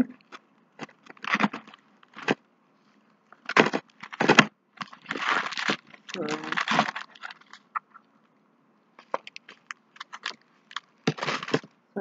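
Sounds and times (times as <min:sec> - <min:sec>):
plastic bags crinkling: 0:00.2 - 0:02.4, 0:03.4 - 0:07.8, 0:09.0 - 0:11.8
plastic packaging crackling: 0:00.2 - 0:02.4, 0:03.4 - 0:08.0, 0:09.0 - 0:11.8.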